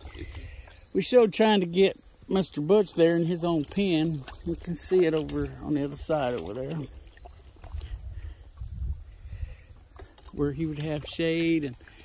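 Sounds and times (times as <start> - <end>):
wind buffeting microphone: 3.6 - 12.0.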